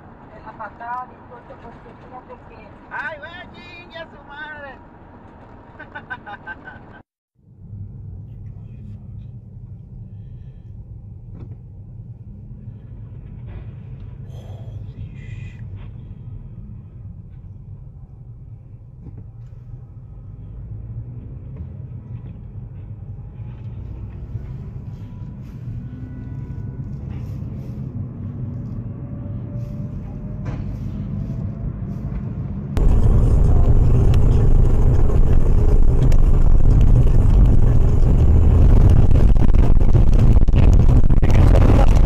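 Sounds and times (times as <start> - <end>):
road and wind noise: 0.0 - 42.0
car engine rising in pitch: 23.5 - 42.0.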